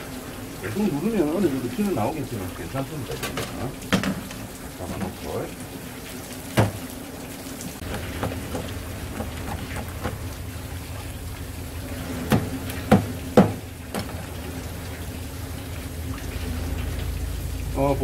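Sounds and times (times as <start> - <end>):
water splashing on cutting board: 0.7 - 16.8
sharp knocks: 6.6 - 6.8, 7.8 - 10.2, 12.3 - 14.2.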